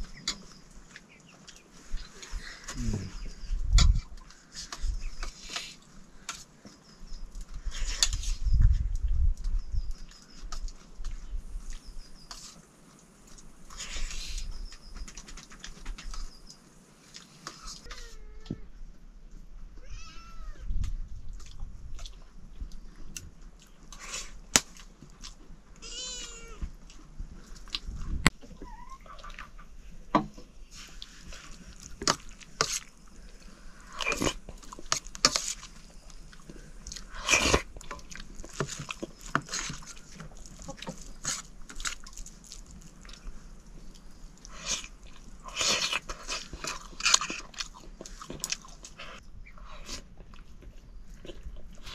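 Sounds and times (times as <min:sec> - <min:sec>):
people chewing: 0:00.0 - 0:16.3, 0:17.0 - 0:18.2, 0:20.8 - 0:28.3, 0:30.7 - 0:51.9.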